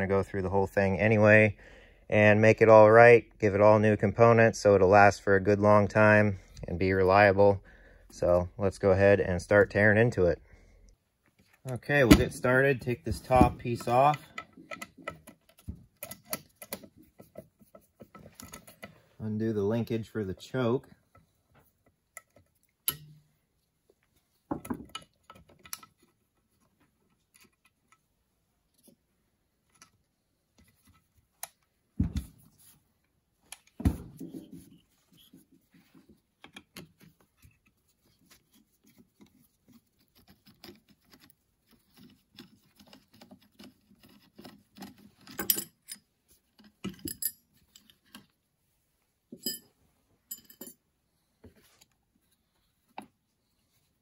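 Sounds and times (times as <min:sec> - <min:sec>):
metal parts and tools clinking: 0:40.0 - 0:48.4, 0:49.3 - 0:50.8.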